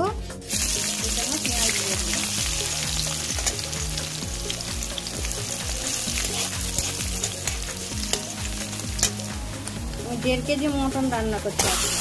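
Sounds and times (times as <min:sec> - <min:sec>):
background music with low beat: 0:00.0 - 0:12.0
onions sizzling in hot oil: 0:00.4 - 0:12.0.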